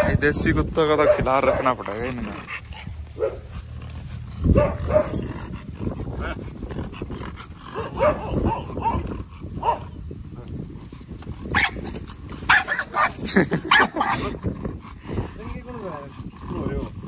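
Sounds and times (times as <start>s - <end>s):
dog barking: 1.0s - 1.8s, 3.2s - 3.5s, 4.5s - 5.2s, 7.8s - 9.9s, 12.5s - 13.1s.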